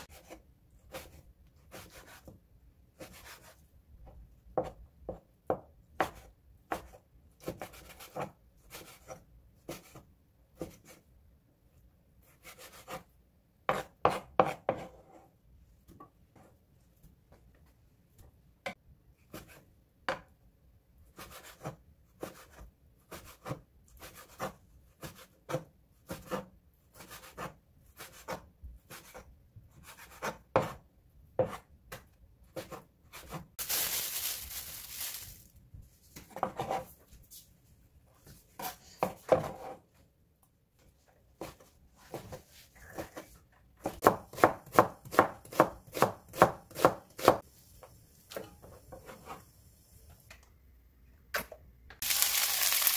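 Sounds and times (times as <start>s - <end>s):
knife chopping on wooden board: 4.5s - 10.0s, 13.7s - 15.0s, 21.2s - 29.2s, 29.8s - 30.8s, 31.4s - 33.4s, 38.6s - 39.8s, 43.8s - 47.4s
knife scraping on board: 36.3s - 37.0s.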